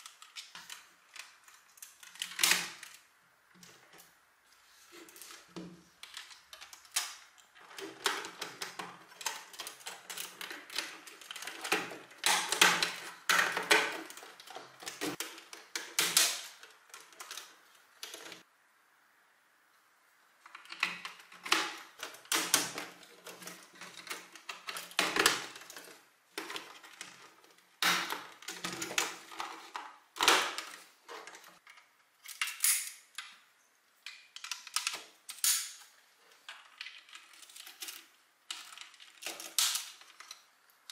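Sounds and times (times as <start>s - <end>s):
plastic parts clicking together: 0.0s - 4.1s, 5.1s - 18.4s, 20.4s - 33.4s, 34.0s - 40.9s.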